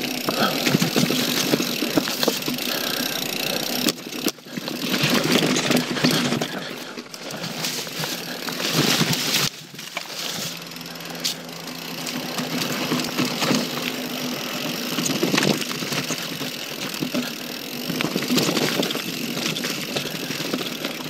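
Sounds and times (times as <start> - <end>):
bike knocks and rattles: 0.0 - 21.0
bike tyre riding noise: 0.0 - 21.0.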